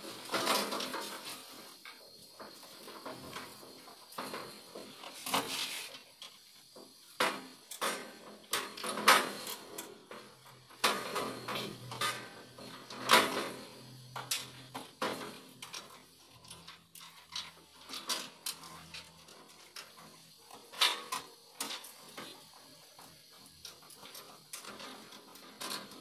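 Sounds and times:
cables and metal parts rattling: 0:07.7 - 0:26.0.

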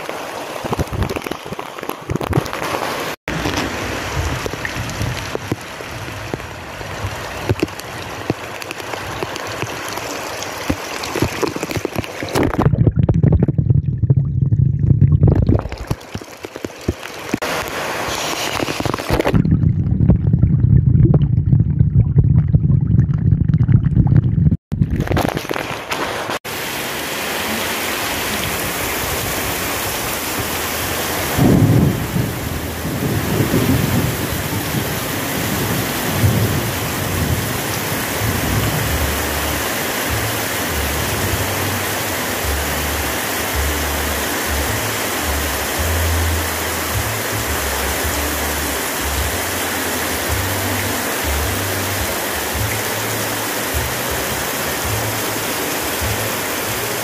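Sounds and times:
heavy rain hissing: 0:00.0 - 0:12.6, 0:16.4 - 0:19.4, 0:25.5 - 0:57.0
muffled deep rumble: 0:12.5 - 0:15.8, 0:19.3 - 0:25.2.

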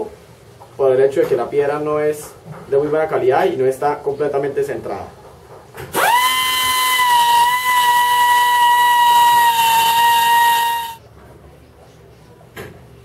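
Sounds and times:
die grinder whining: 0:05.9 - 0:11.0.

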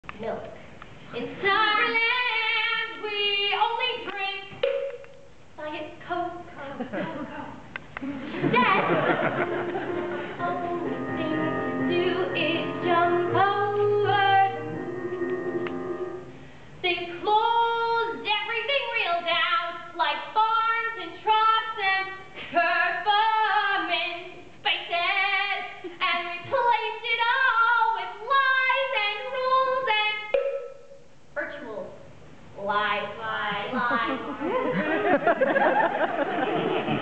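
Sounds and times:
woman singing a show tune: 0:01.1 - 0:04.6, 0:10.4 - 0:14.6
sustained chords: 0:09.2 - 0:16.5.

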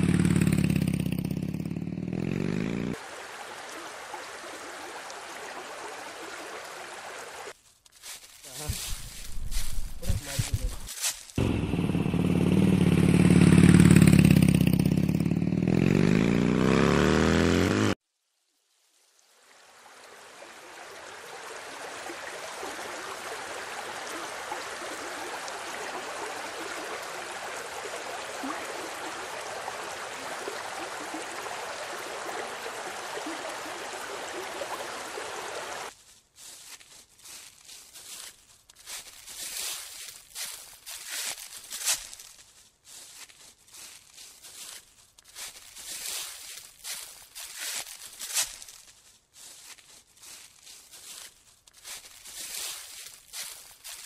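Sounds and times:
small waterfall over rocks: 0:02.9 - 0:07.6, 0:19.1 - 0:35.9
motor running loudly: 0:11.4 - 0:13.8.

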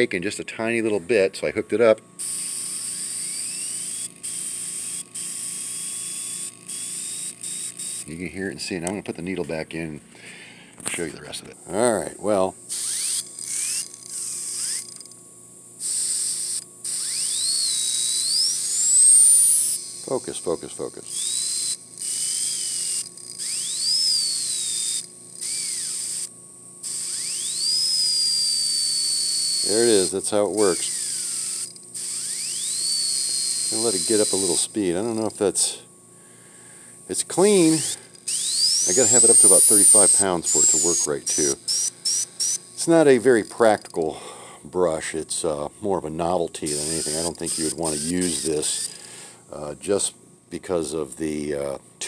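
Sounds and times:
turbine whine: 0:00.0 - 0:51.9
airbrush air hissing: 0:15.8 - 0:34.8, 0:37.2 - 0:44.5, 0:46.6 - 0:49.2
airbrush air hiss: 0:37.5 - 0:44.4, 0:46.7 - 0:49.2.

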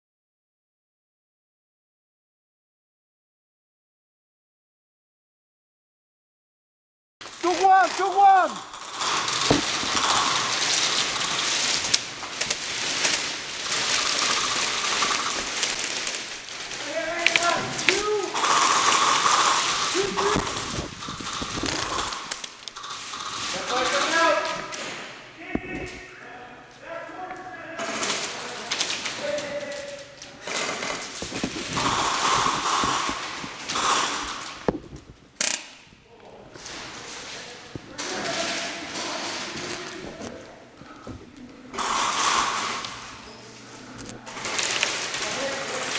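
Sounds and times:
airsoft gun rapid fire: 0:07.2 - 0:24.7, 0:30.5 - 0:34.7, 0:41.8 - 0:43.0
sharp crack: 0:07.2 - 0:26.0, 0:27.9 - 0:36.0.

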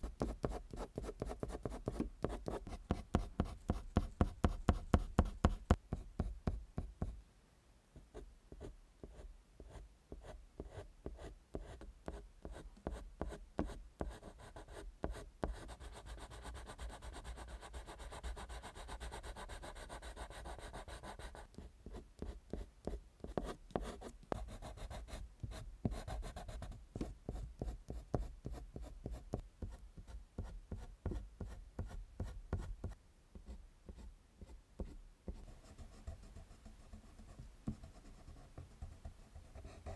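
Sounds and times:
pencil scratching on paper: 0:10.6 - 0:30.8.

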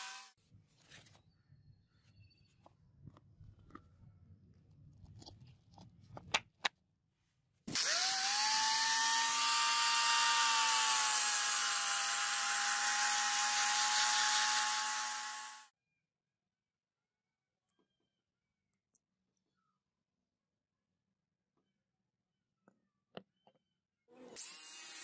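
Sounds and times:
angle grinder high whine: 0:07.7 - 0:15.7.

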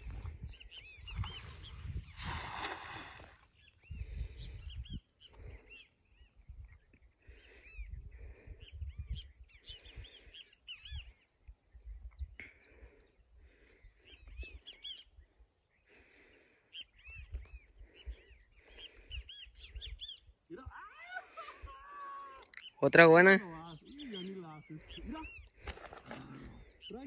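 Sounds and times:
wind on microphone: 0:00.0 - 0:05.6, 0:07.7 - 0:10.1
birds chirping: 0:00.0 - 0:27.0.

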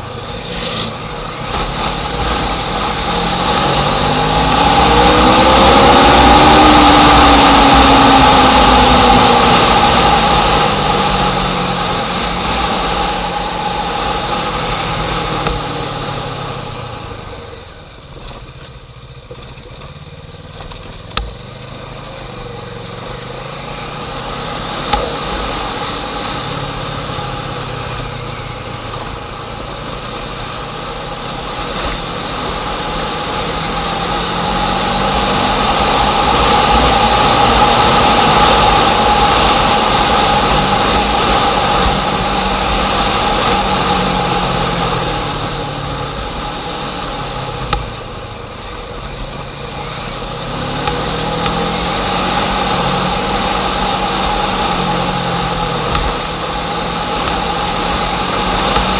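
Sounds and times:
motor engine running: 0:00.0 - 0:58.9.

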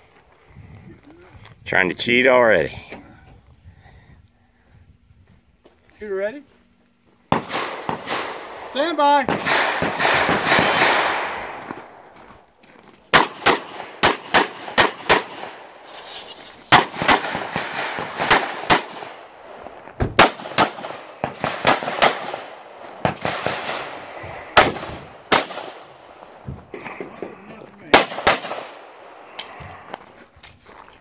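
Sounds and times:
pistol shots: 0:07.3 - 0:12.0, 0:13.1 - 0:15.8, 0:16.7 - 0:19.4, 0:20.1 - 0:26.2, 0:27.9 - 0:29.5.

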